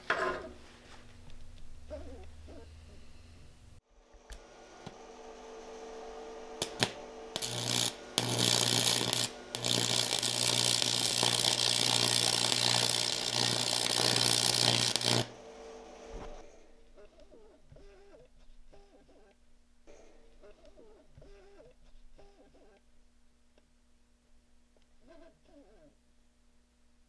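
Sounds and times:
welding arc crackling hiss: 5.9 - 16.4
welding arc striking clicks: 6.6 - 15.4.

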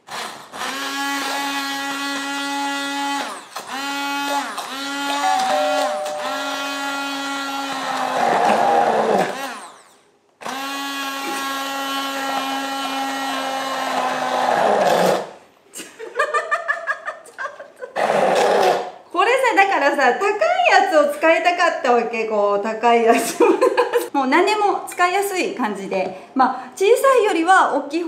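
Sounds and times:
immersion blender motor whirring: 0.0 - 5.4, 6.2 - 15.4.

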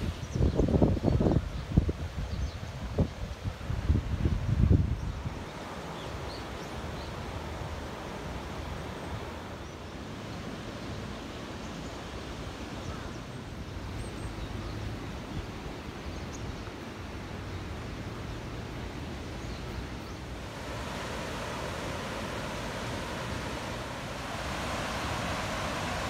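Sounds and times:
wind: 0.0 - 26.0
water rushing over weir: 16.8 - 26.0.

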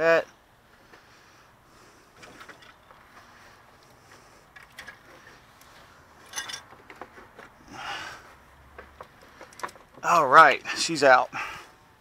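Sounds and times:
metal parts clicking and knocking: 4.5 - 5.4, 6.2 - 7.5, 8.8 - 10.1.

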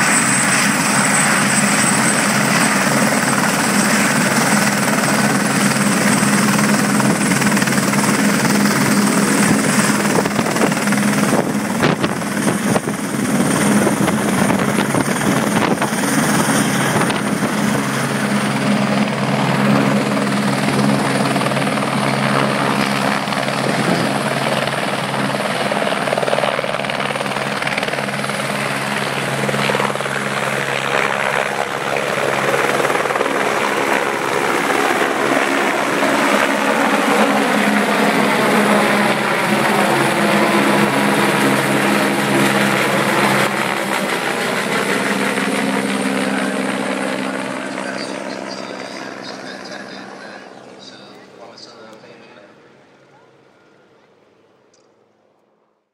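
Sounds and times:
helicopter turbine and rotor: 0.0 - 55.8.

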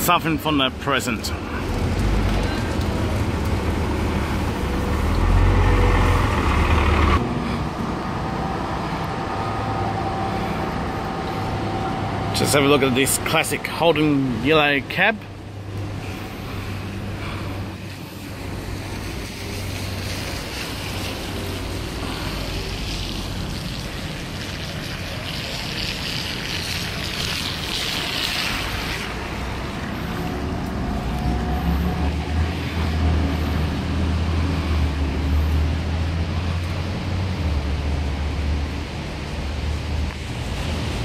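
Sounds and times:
vehicle engine rumble: 0.0 - 41.0.

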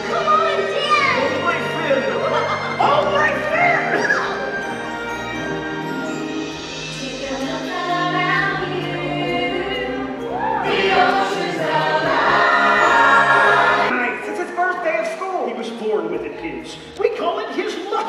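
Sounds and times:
stage show music: 0.0 - 18.0
choir singing: 5.4 - 14.3.

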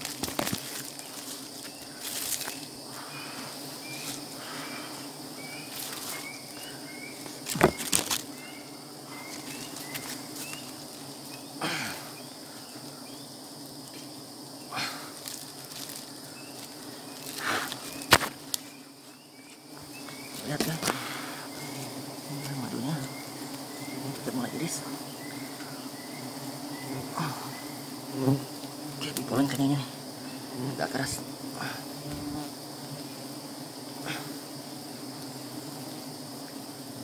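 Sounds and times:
branches knocking: 0.0 - 2.7, 5.7 - 8.4, 15.2 - 18.7
leaves rustling: 0.0 - 35.8
honeybees humming: 0.0 - 37.0.

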